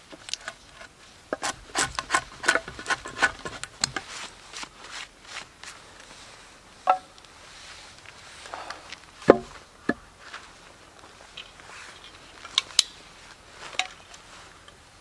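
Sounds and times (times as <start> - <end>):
steel blade scraping wood: 0.3 - 4.1.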